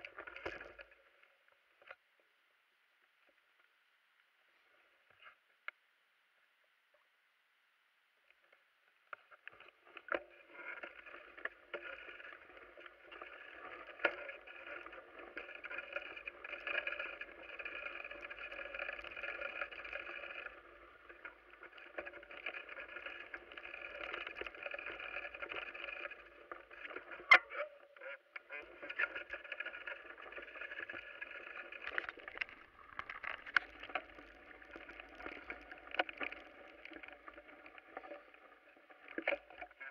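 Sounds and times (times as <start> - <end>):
wheels rolling over gravel: 0.0 - 1.0, 9.2 - 39.9.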